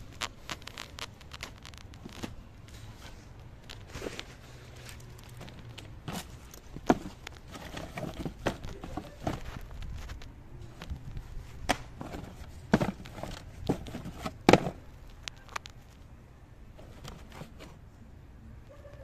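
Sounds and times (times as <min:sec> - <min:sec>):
cardboard boxes knocking and scraping: 0:06.0 - 0:09.8, 0:11.7 - 0:14.9.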